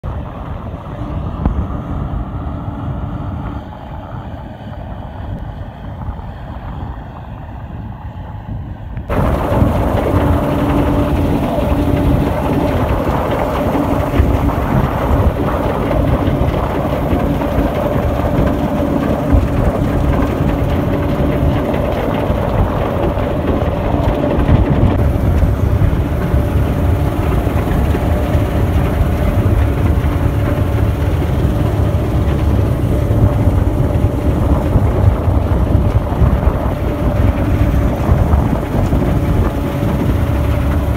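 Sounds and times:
combine harvester engine and machinery: 0.0s - 40.9s
steady machine hum: 9.0s - 40.9s.

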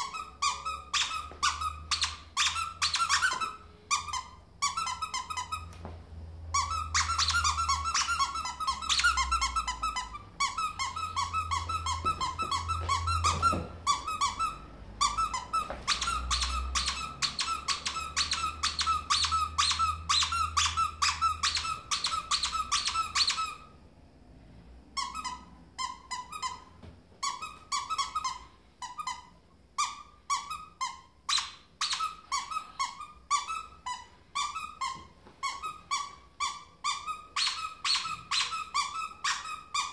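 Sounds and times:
squeaky toy squeaking: 0.0s - 5.8s, 6.5s - 23.8s, 24.9s - 39.9s.

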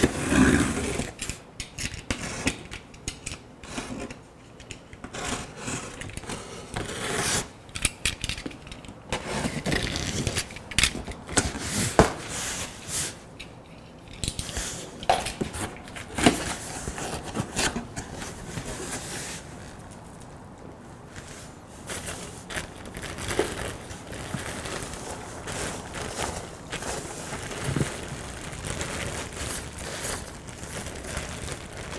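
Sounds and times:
cardboard flaps scraping and rustling: 9.1s - 13.2s, 14.4s - 20.2s, 21.1s - 31.9s
packing tape breaking: 21.2s - 31.9s.

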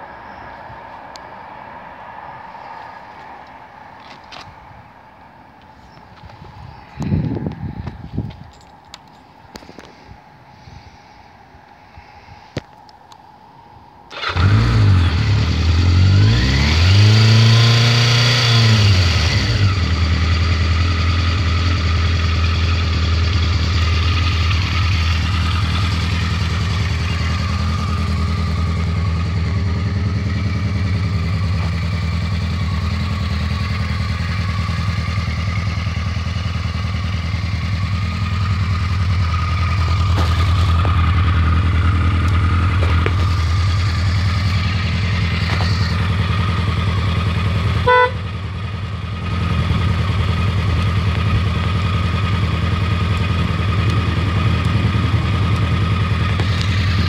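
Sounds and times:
motorcycle engine revving and idling: 14.1s - 57.0s.

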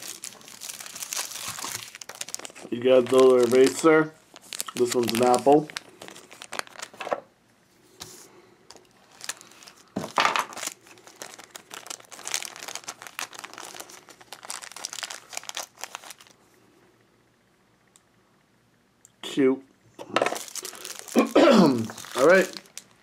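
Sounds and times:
plastic packaging crinkling: 0.0s - 7.3s, 8.7s - 16.4s, 20.2s - 23.0s.

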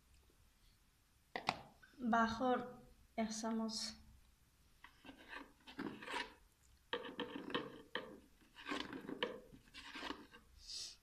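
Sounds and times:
metal spoon scraping spice container: 4.8s - 10.4s.

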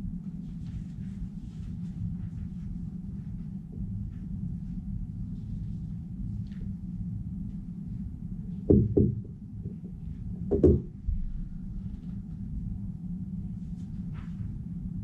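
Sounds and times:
low room hum: 0.0s - 15.0s
knocks on wooden table: 8.7s - 11.0s.

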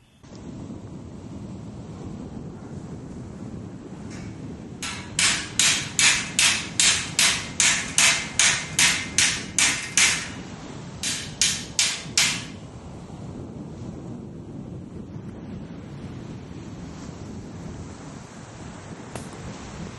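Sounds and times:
low steady rush: 0.0s - 16.8s
hammer blows: 4.0s - 12.6s.

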